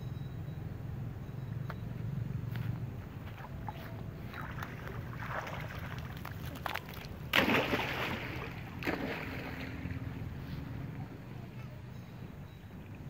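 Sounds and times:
water splashing: 3.2s - 10.4s.

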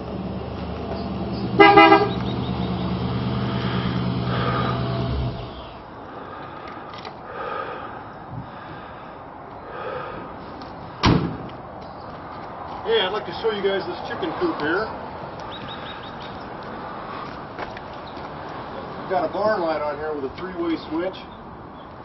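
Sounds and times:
car engine idling: 0.0s - 6.5s
car horn beep: 1.6s - 2.4s
car door shutting: 11.0s - 11.5s.

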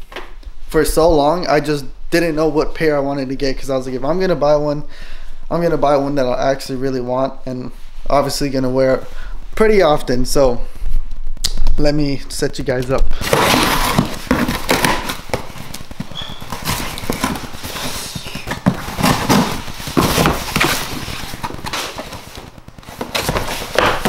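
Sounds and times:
cardboard flaps being handled: 13.2s - 24.0s
knife slicing packing tape: 13.2s - 24.0s.

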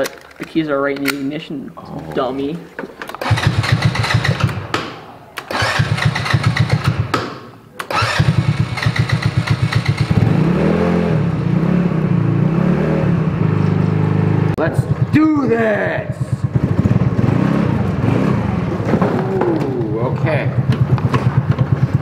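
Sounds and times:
engine cranking: 3.0s - 7.1s, 7.8s - 10.4s
engine revving and running: 5.5s - 7.0s, 7.9s - 15.1s, 16.4s - 19.6s.

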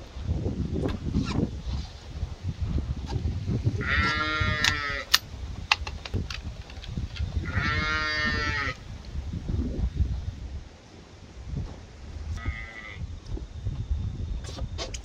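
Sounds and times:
sheep bleating: 3.8s - 5.1s, 7.4s - 8.8s, 12.4s - 13.0s
sharp clicks: 4.6s - 7.3s.

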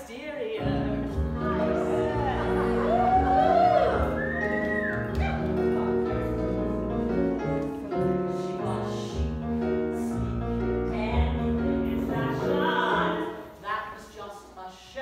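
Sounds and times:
show tune piano accompaniment: 0.6s - 13.9s
bass line: 0.7s - 12.9s.

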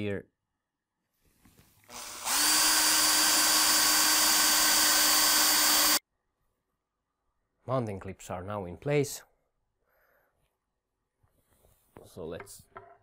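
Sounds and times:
cordless drill drilling: 1.9s - 6.0s.

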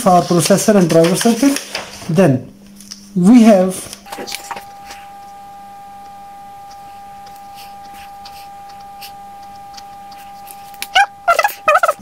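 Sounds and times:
faint low hum: 0.0s - 12.0s
high-pitched electronic tone: 5.8s - 12.0s.

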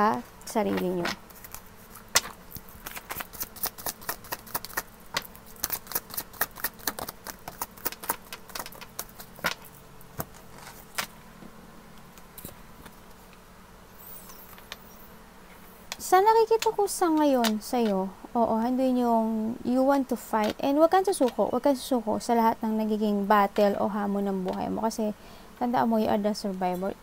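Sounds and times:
cards being shuffled: 0.7s - 11.1s.

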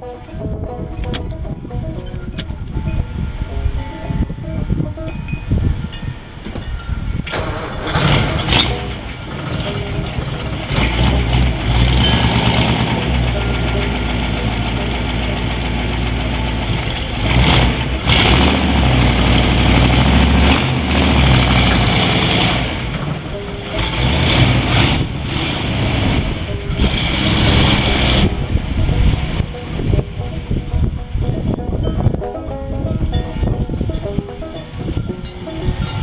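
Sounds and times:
car engine revving: 7.3s - 36.0s.

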